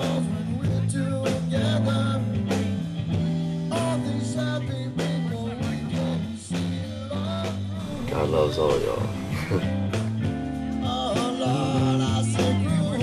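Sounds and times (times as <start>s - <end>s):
electric guitar: 0.0s - 13.0s
bass guitar notes: 7.7s - 10.7s
steady drum beat: 7.8s - 10.0s.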